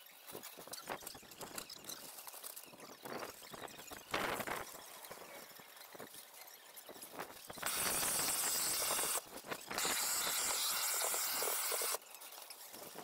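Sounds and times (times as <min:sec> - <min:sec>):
heat gun hissing: 0:07.6 - 0:09.2, 0:09.8 - 0:12.0.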